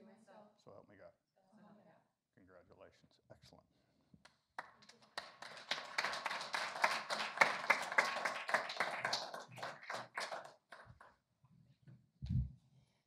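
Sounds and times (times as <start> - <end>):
audience applause: 4.6 - 11.1.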